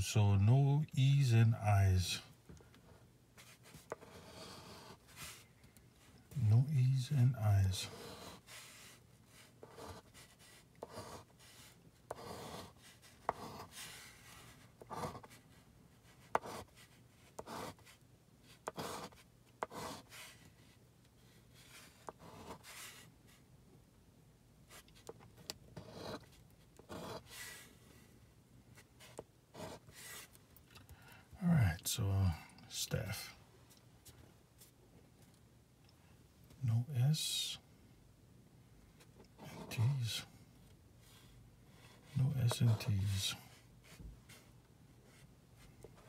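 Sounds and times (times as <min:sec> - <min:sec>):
chip scratching lottery ticket: 0:03.8 - 0:05.0, 0:07.7 - 0:13.8, 0:14.8 - 0:15.4, 0:16.2 - 0:16.7, 0:17.4 - 0:17.9, 0:18.5 - 0:20.2, 0:26.8 - 0:27.3.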